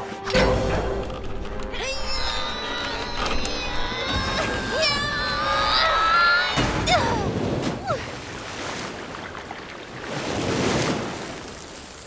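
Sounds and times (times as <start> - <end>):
rushing water: 4.2 - 12.0.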